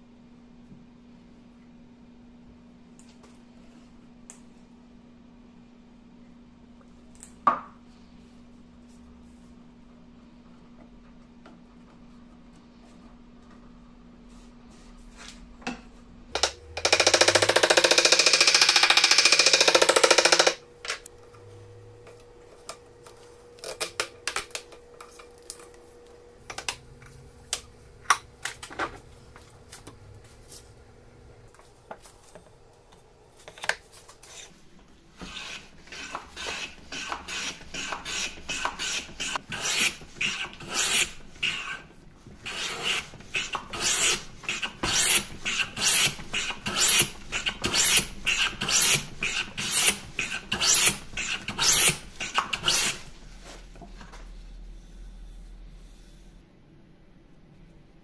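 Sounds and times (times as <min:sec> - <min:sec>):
hand plane planing wood: 0:35.3 - 0:41.8, 0:42.5 - 0:53.0.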